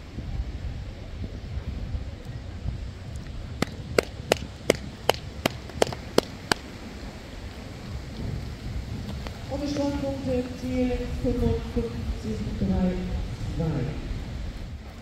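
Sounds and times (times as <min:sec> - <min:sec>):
wind rumble on microphone: 0:00.0 - 0:15.0
sharp cracks: 0:03.6 - 0:06.7.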